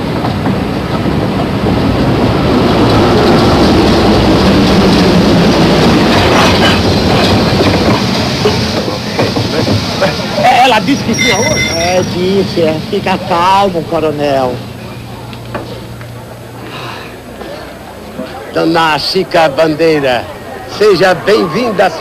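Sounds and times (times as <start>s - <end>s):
wheels clicking over rail joints: 0.0s - 16.3s
train rumbling: 0.0s - 22.0s.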